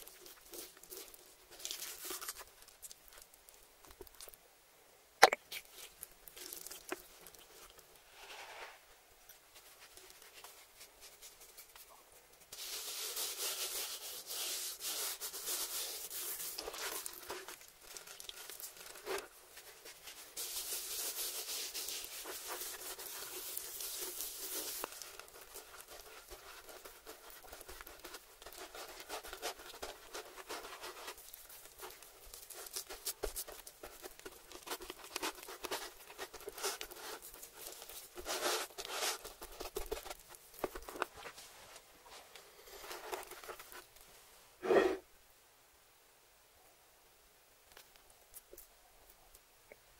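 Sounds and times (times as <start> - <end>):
spice rubbed into meat: 0.0 - 4.4, 5.5 - 8.8, 9.5 - 41.3.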